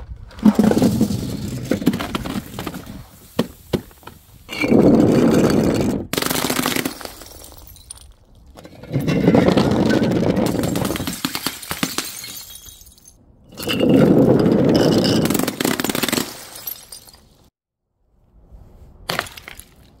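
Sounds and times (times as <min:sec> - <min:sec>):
glass bottles shattering on tiles: 0:04.5 - 0:08.1, 0:10.5 - 0:14.0, 0:14.6 - 0:17.4.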